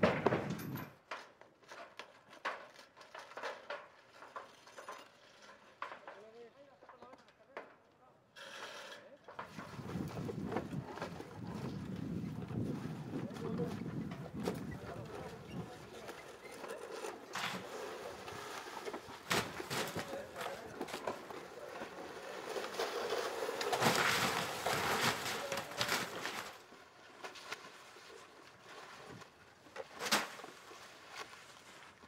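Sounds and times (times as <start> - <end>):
shingles sliding off roof: 9.3 - 27.5
shovels scraping shingles: 13.9 - 26.7.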